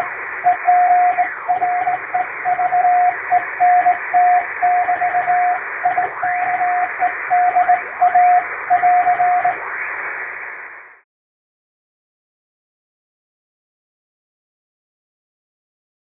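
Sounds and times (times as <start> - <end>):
morse code tone: 0.0 - 9.6
radio static hiss: 0.0 - 11.0
faint rising whistles: 0.4 - 9.6.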